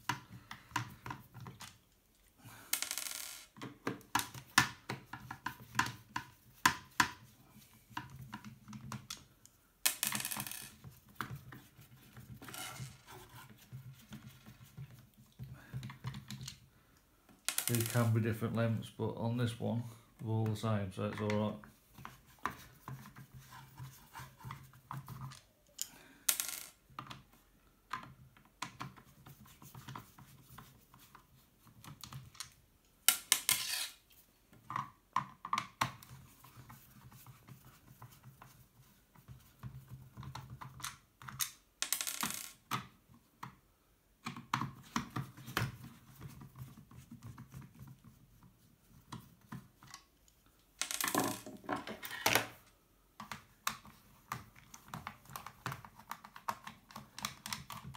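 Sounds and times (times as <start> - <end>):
screwdriver clicking and scraping: 32.0 - 34.1
screw dropping on wooden table: 50.8 - 52.5.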